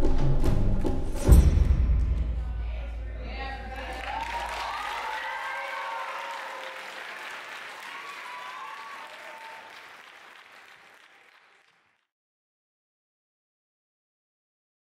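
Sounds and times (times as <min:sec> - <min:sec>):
audience applauding: 0:03.4 - 0:12.1.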